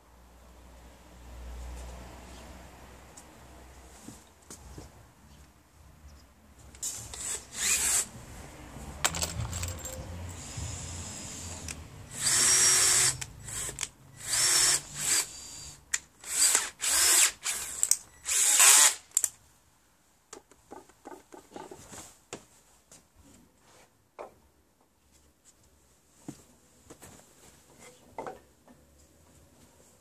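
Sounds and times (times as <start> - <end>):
power drill bursts: 7.0 - 8.1, 10.4 - 19.2.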